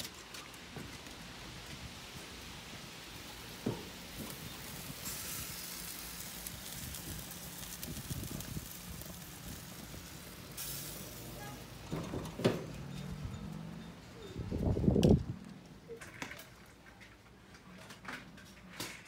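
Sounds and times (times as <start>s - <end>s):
meat sizzling on a grill: 1.9s - 13.2s.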